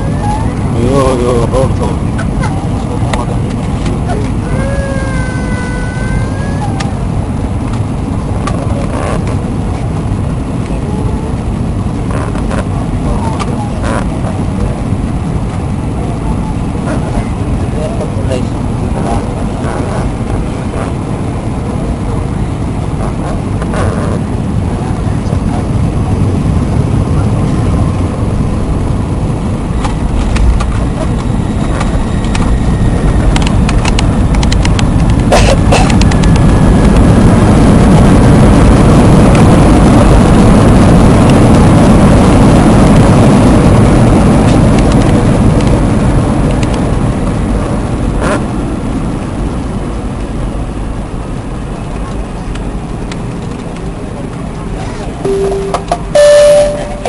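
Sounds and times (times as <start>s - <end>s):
jet cabin engine rumble: 0.0s - 57.0s
faint pitched tone: 55.2s - 57.0s.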